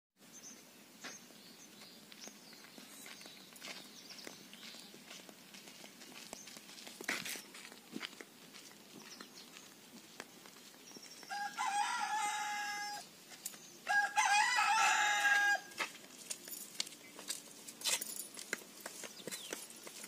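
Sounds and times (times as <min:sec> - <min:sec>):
rooster crowing: 0:11.3 - 0:13.1, 0:13.8 - 0:15.8.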